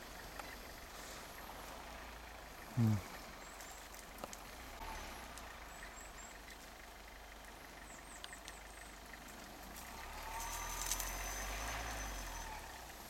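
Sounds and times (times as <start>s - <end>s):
faint car engine running: 0.0s - 13.0s.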